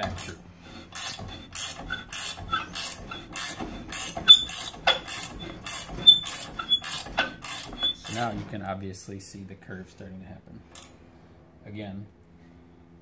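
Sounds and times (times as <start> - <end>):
slip roller metallic scraping clicks: 0.0 - 8.5.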